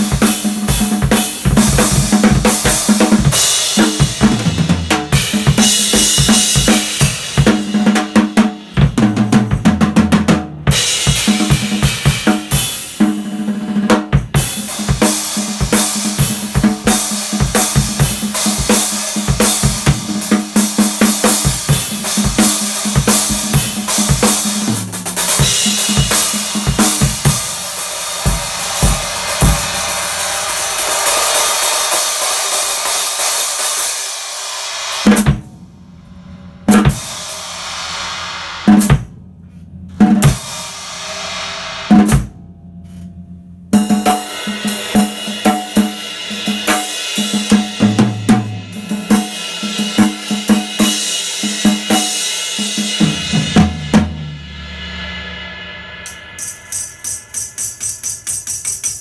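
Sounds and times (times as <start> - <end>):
cymbals ringing: 20.6 - 59.0
snare drum with snares off: 34.9 - 35.4, 36.7 - 37.0.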